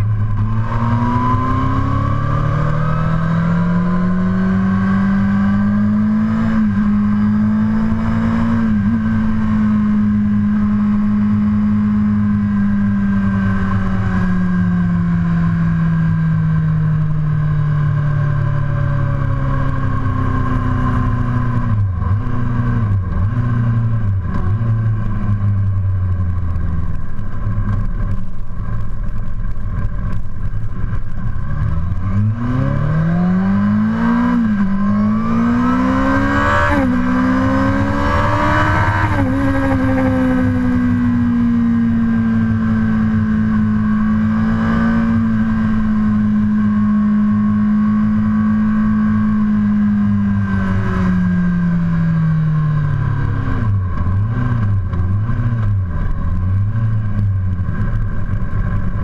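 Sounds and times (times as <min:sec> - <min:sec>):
motorcycle engine at speed: 0:00.0 - 0:59.0
wind noise: 0:00.0 - 0:59.0.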